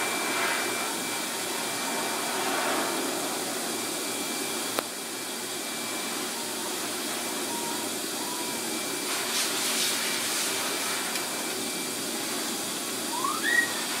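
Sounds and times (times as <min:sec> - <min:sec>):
electric blower motor whoosh: 0:00.0 - 0:06.1
short rising squeal: 0:13.1 - 0:13.9.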